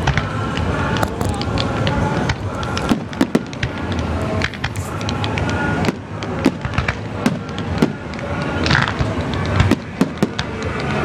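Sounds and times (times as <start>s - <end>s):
steady noisy background: 0.0s - 11.0s
fireworks bursting: 1.0s - 8.0s.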